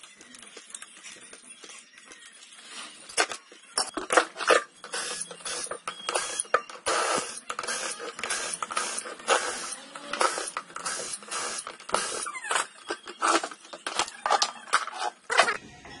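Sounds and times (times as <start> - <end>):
cordless drill running in bursts: 4.9 - 12.3.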